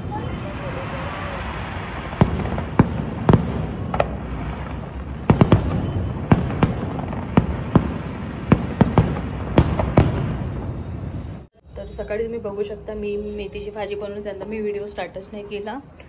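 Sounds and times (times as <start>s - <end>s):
fireworks bangs: 0.0s - 12.7s.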